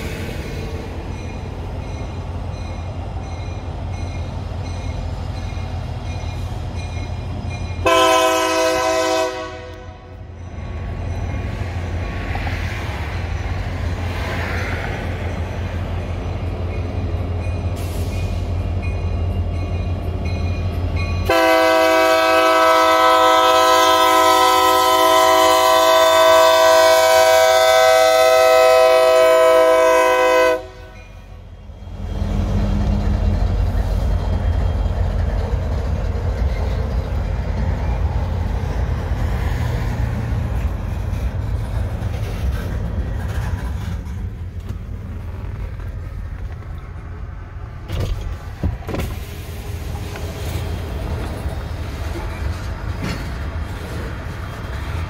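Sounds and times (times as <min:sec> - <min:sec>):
rumble of train rolling past: 0:00.0 - 0:55.0
locomotive air horn chord: 0:07.8 - 0:10.2, 0:21.2 - 0:31.1.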